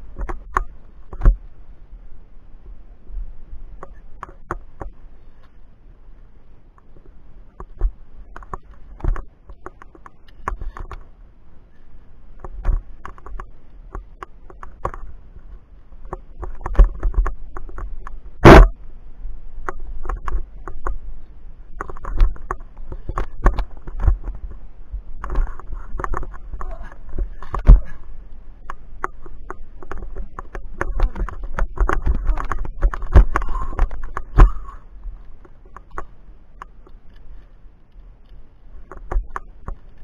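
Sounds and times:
climbing gear clicking on rock: 6.7 - 11.1, 11.7 - 18.7, 19.6 - 40.0.

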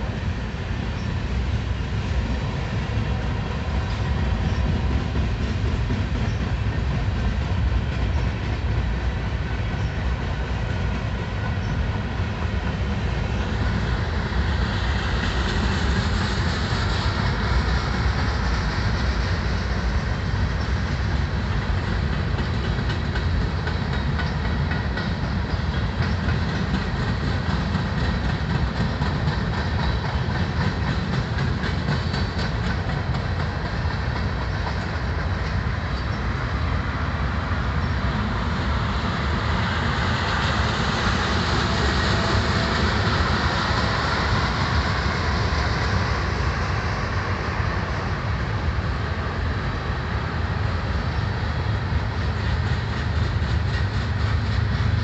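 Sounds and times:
freight train cars rolling past: 0.0 - 55.0
high hiss: 12.9 - 22.6.

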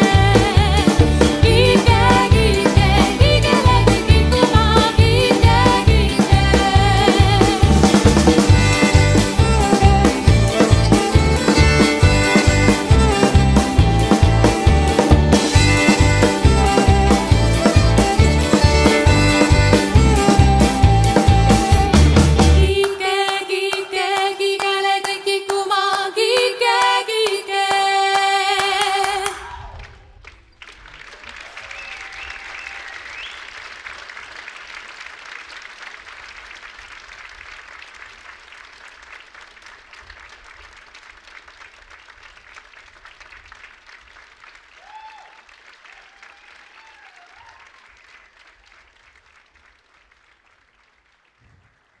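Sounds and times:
folk song with accompaniment: 0.0 - 29.6
audience applause: 0.0 - 52.0.

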